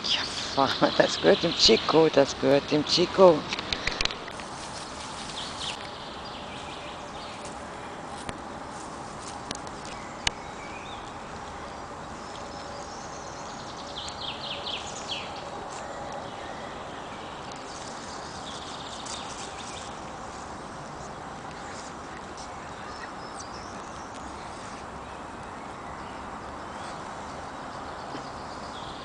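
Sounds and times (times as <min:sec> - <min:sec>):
woodland stream hissing: 0:00.0 - 0:08.2.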